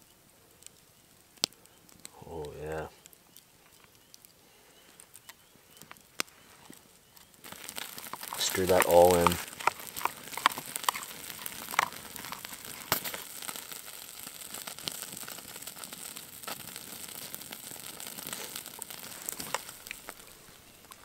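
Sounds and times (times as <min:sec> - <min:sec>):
sizzle and crackle: 0:00.0 - 0:21.0
scattered clicks: 0:07.2 - 0:13.6.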